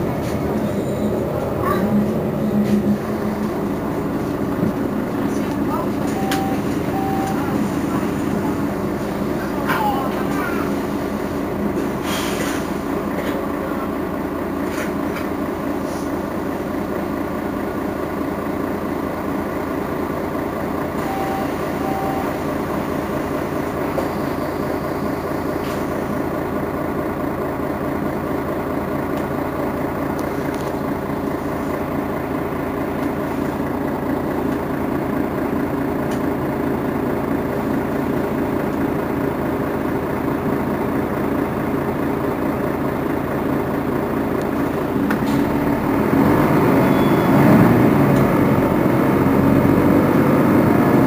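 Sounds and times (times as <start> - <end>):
bus diesel engine idling: 0.0 - 51.0
short beeps: 6.1 - 7.7, 21.0 - 22.6, 46.8 - 47.4.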